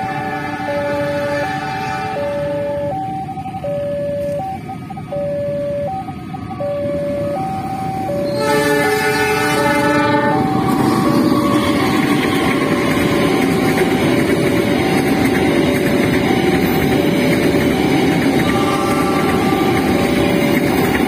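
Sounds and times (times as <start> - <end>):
train horn: 0.0 - 2.9, 8.2 - 12.4, 18.3 - 20.5
level crossing alarm: 0.0 - 21.0
train wagons rolling: 0.0 - 21.0.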